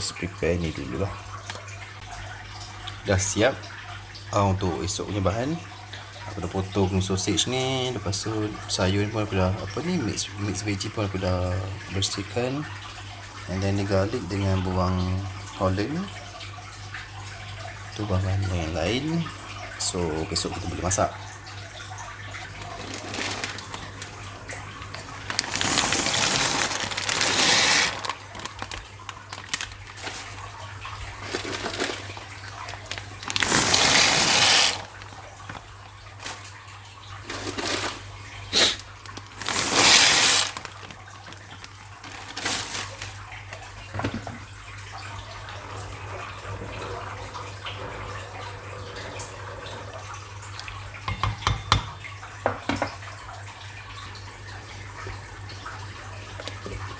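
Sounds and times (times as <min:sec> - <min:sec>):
tap water splashing into a sink: 0:00.0 - 0:56.9.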